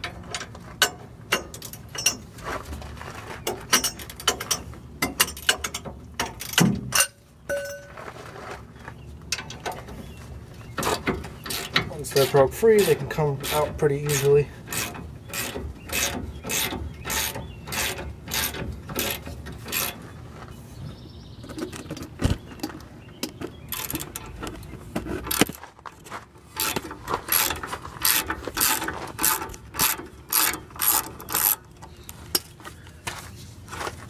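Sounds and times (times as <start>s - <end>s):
hand ratchet clicking: 10.8s - 20.0s, 26.6s - 31.6s.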